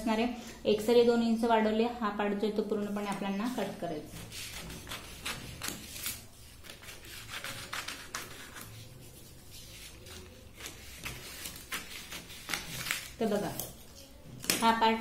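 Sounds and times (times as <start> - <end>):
scissors cutting paper: 3.1 - 14.8.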